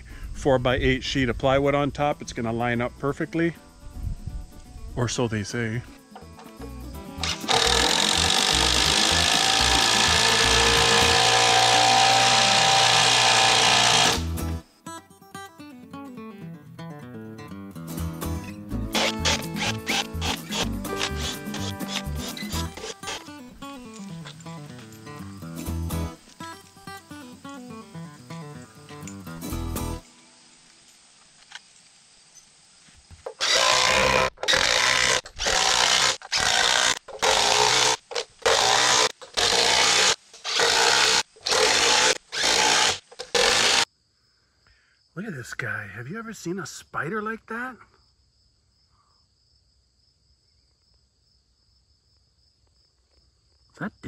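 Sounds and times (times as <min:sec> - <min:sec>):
acoustic guitar picking: 0:06.0 - 0:30.0
cordless drill driving screw: 0:07.2 - 0:14.5, 0:18.9 - 0:23.3, 0:33.3 - 0:43.8
tool working on wood in bursts: 0:07.2 - 0:14.5, 0:18.9 - 0:23.4, 0:33.2 - 0:43.9.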